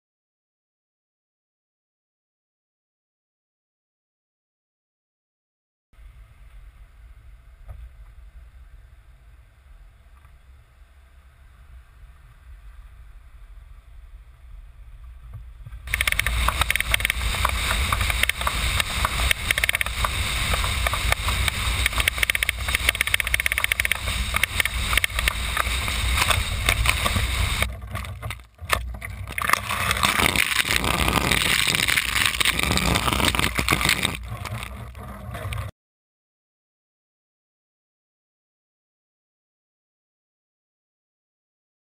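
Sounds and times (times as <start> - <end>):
road rumble: 11.1 - 35.7
wind rushing over camera: 14.4 - 35.7.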